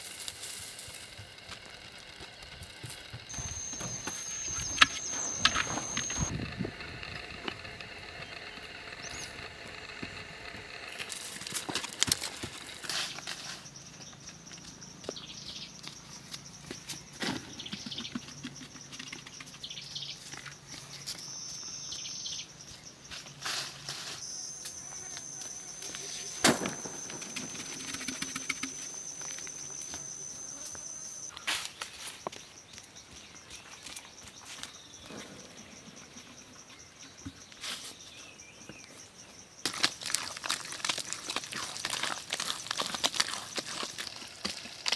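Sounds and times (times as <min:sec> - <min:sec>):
soil scraping and crumbling: 0:00.0 - 0:13.9, 0:23.2 - 0:32.3, 0:39.6 - 0:44.9
high insect buzz: 0:00.0 - 0:19.3, 0:21.0 - 0:32.3
bird chirp: 0:03.3 - 0:06.3, 0:08.1 - 0:09.5, 0:13.1 - 0:23.2.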